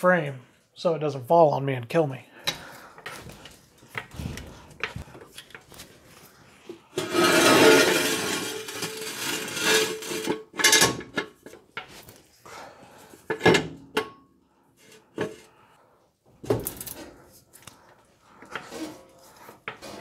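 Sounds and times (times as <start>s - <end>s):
metal scraping on concrete: 6.7s - 11.3s, 18.4s - 20.0s.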